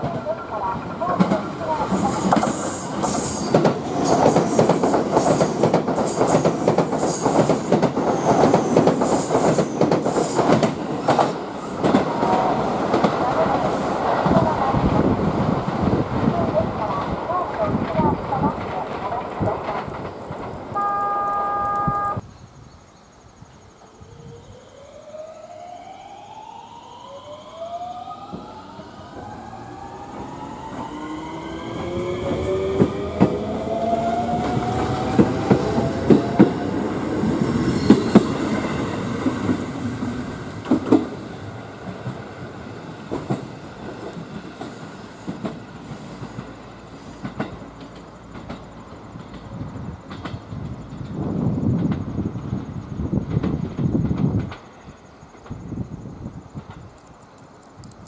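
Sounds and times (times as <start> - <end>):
train horn blast: 20.7 - 22.2
electric train motors whining: 24.1 - 38.7
wheels clacking over rail joints: 29.2 - 55.7.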